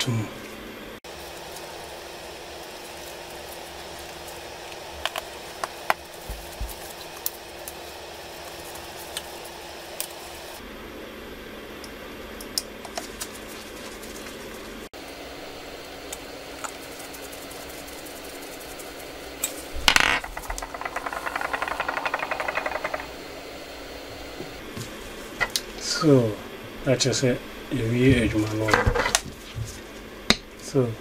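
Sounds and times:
fast rattling buzz: 16.9 - 24.0.

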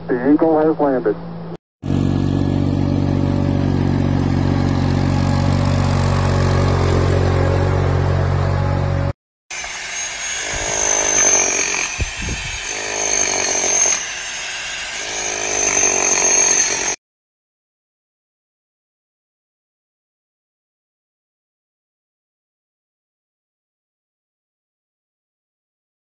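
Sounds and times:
tractor engine running: 1.3 - 9.1
hammer drill drilling into brick: 9.5 - 17.0.

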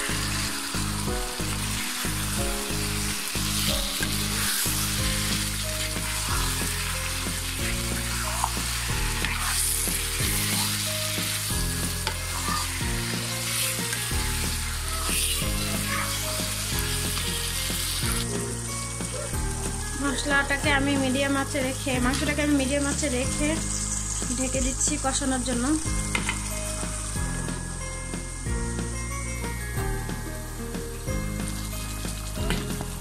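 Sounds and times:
background music: 0.0 - 33.0
meat sizzling in oil: 0.0 - 33.0
wooden spatula scraping pan: 3.6 - 18.5.

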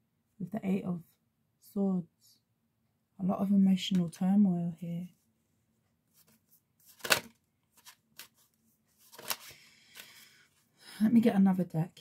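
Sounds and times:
card rustling: 6.1 - 10.3
cards clicking and tapping: 6.8 - 8.4, 9.0 - 10.2.

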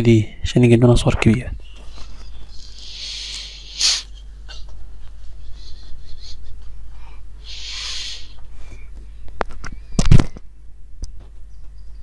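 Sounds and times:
low electrical hum: 0.0 - 12.0
breathy hiss: 2.6 - 4.2, 6.9 - 8.7.

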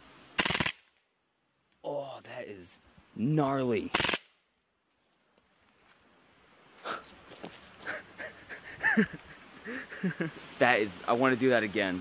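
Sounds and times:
sharp crack: 0.4 - 1.1, 3.9 - 4.5
man laughing excitedly: 7.8 - 10.4.

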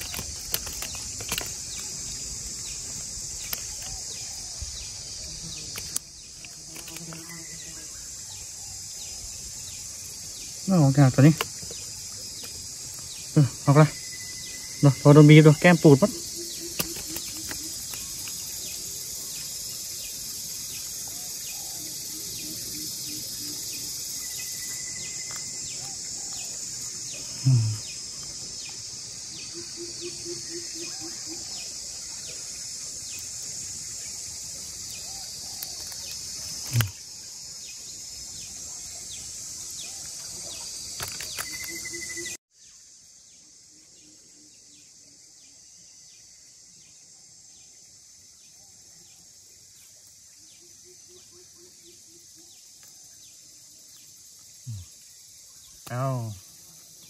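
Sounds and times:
high-pitched insect chorus: 0.0 - 57.0
low pulsing calls: 10.7 - 19.4.

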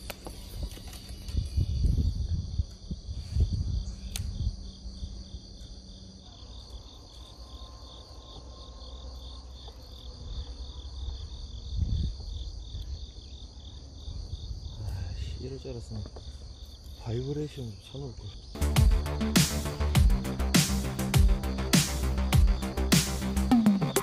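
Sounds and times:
insects chirping: 0.0 - 24.0.

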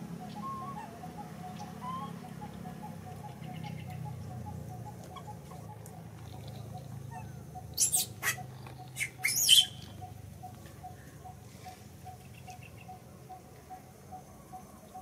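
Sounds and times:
baby monkey squealing: 7.8 - 9.8.

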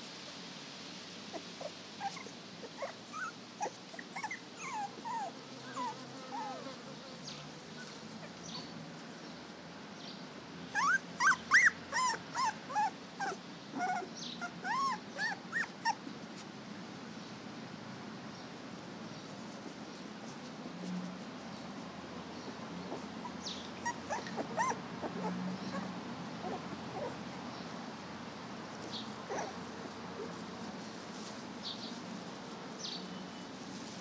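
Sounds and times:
puppies whimpering: 1.3 - 6.7, 10.8 - 16.0, 22.5 - 27.4, 28.8 - 30.4.

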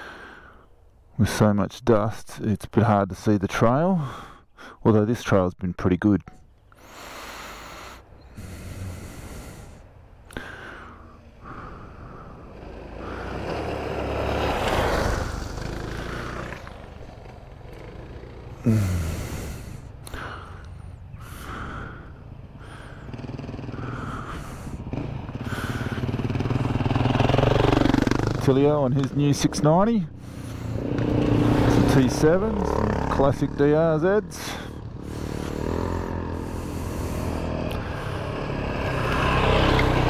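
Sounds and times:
motorcycles riding past: 10.5 - 40.0.

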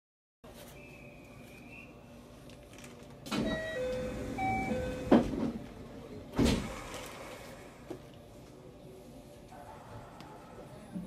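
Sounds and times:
door warning tones: 3.3 - 5.6
train doors thumping shut: 3.3 - 5.7, 6.3 - 6.9.

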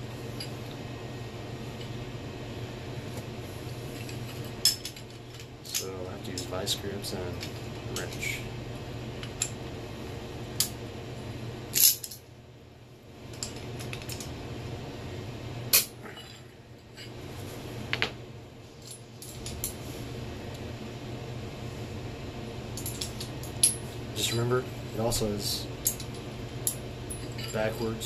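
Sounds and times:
steady low hum: 0.0 - 28.0
hand tools clinking on metal: 27.1 - 28.0.

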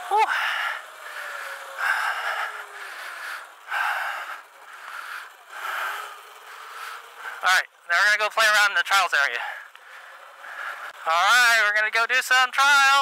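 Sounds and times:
person breathing hard: 0.0 - 7.4, 9.4 - 11.0
electric motor whine: 0.0 - 7.9.

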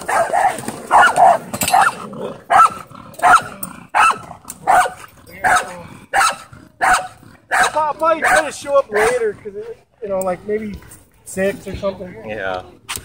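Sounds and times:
dog barking: 0.0 - 9.2.

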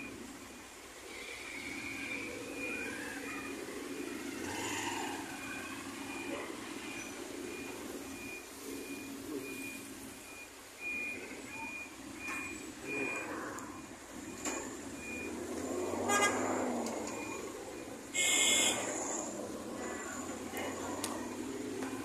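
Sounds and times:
vehicle engines at low speed: 0.0 - 22.0
vehicle horn: 16.0 - 16.6, 18.2 - 18.8.

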